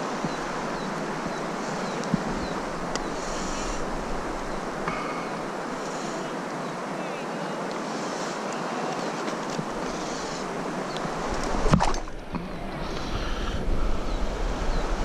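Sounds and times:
river current rushing: 0.0 - 15.0
wind noise on microphone: 9.6 - 15.0.

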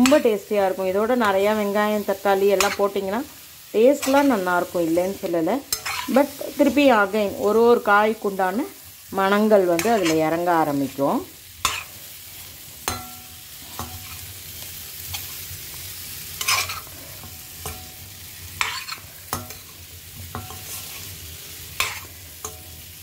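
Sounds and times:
frying sizzle: 0.0 - 23.0
metal spatula scraping pan: 5.6 - 6.8, 9.8 - 10.3, 11.6 - 14.3, 16.3 - 22.7.

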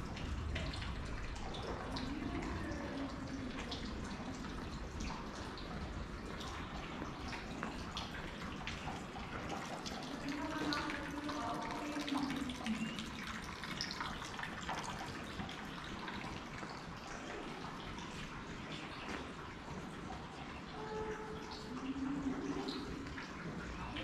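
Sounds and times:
fountain water trickling: 0.0 - 24.0.

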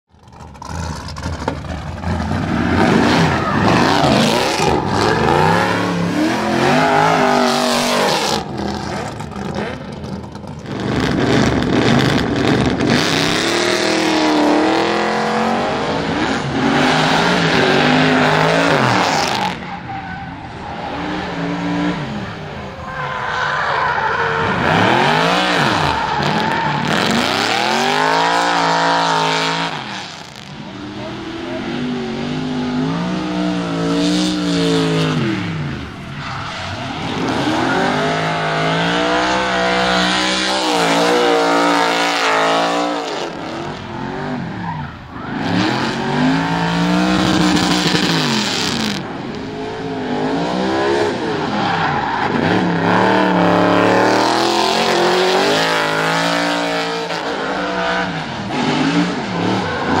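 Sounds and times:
car engine revving hard: 0.6 - 19.7, 24.3 - 36.0, 36.6 - 60.0
tyres squealing: 17.3 - 21.5.

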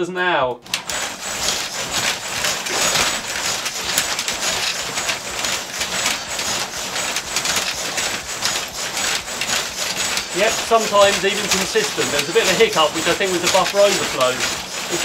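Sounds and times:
robot leg motors clattering: 0.7 - 15.0.

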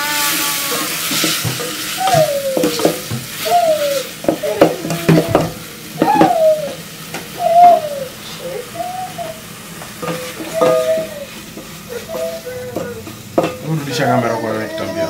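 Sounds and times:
tomatoes sizzling: 0.0 - 15.0
spoon knocking against pot: 1.1 - 3.3, 4.2 - 6.5, 10.0 - 13.7
short falling cries: 2.0 - 2.8, 3.4 - 9.4, 10.4 - 13.1.

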